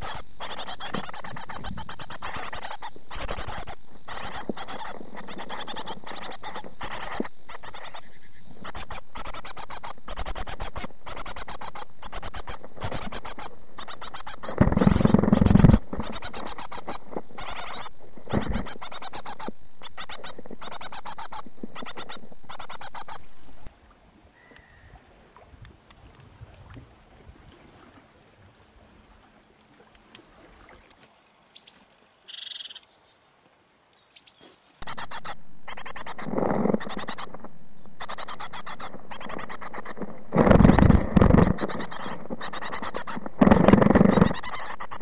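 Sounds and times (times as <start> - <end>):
nestlings begging calls: 0.0 - 23.5, 34.2 - 45.0
faint outdoor sound: 0.0 - 45.0.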